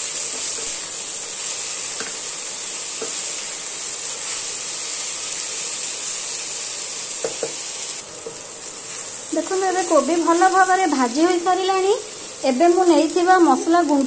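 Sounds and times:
vegetables sizzling in hot oil: 0:00.0 - 0:14.0.

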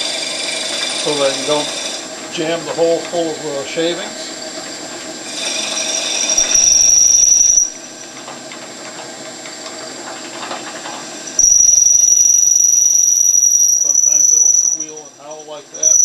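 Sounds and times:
drill bit cutting whine: 0:00.0 - 0:04.5, 0:05.2 - 0:08.1, 0:11.3 - 0:16.0
lathe humming: 0:00.0 - 0:08.3, 0:11.2 - 0:16.0.

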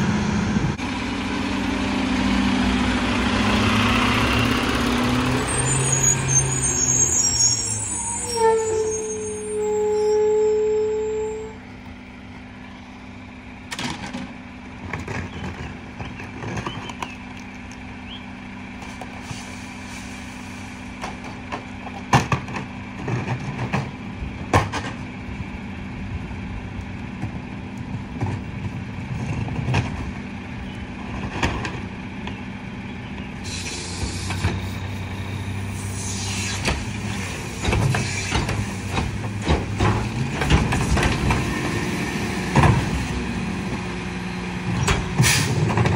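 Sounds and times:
diesel engine idling: 0:00.0 - 0:40.4
hydraulics hissing and clattering: 0:33.4 - 0:43.4.

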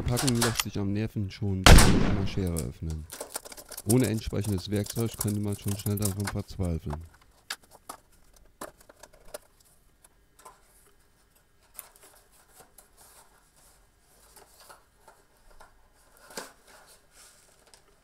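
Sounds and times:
cardboard box rustling: 0:02.9 - 0:09.6.

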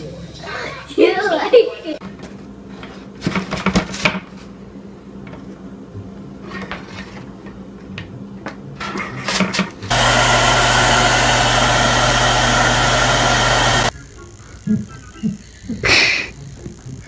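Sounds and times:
hair dryer blowing: 0:09.9 - 0:13.9.

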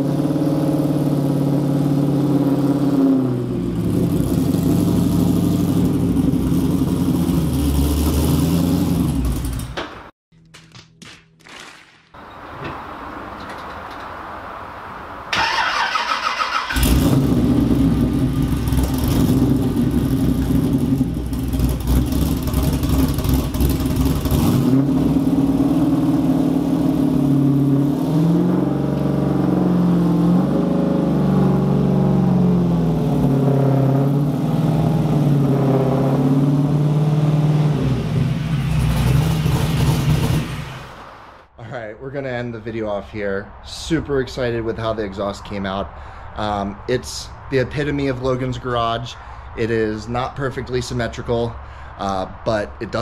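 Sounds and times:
starter whine: 0:15.3 - 0:25.2
car engine idling loudly: 0:16.8 - 0:24.5.

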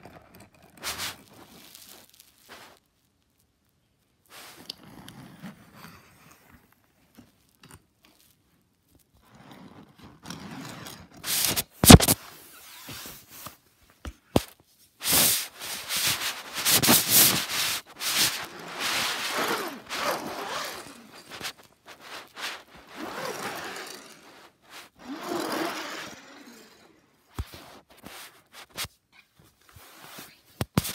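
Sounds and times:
toy cars scraping across fabric mat: 0:00.8 - 0:02.8, 0:09.2 - 0:13.6, 0:15.0 - 0:28.9
rustling handling noise: 0:00.8 - 0:03.2, 0:11.2 - 0:25.8, 0:27.3 - 0:30.9.

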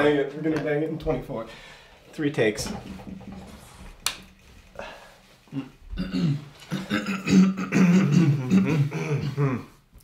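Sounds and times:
man making wordless vocal noises: 0:05.5 - 0:09.8.

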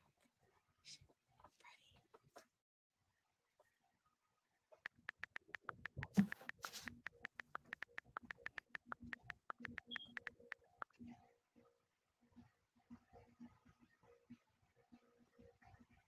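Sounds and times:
phone keyboard clicking: 0:04.9 - 0:10.6.

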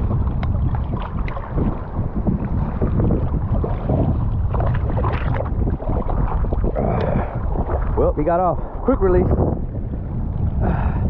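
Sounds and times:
fish thrashing and splashing: 0:00.0 - 0:08.0
water sloshing around legs: 0:00.0 - 0:08.0
wind buffeting microphone: 0:00.0 - 0:11.0.

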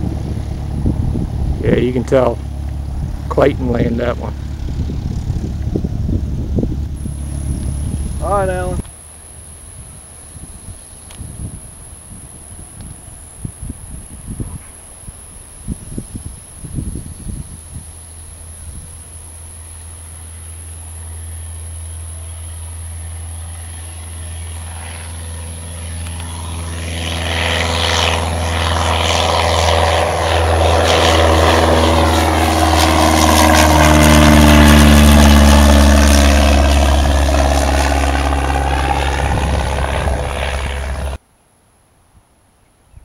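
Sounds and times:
propeller plane engine drone: 0:00.0 - 0:41.2.

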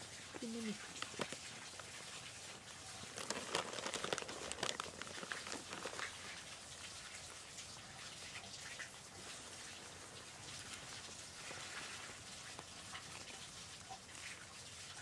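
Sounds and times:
plastic bag crinkling: 0:00.4 - 0:06.5.

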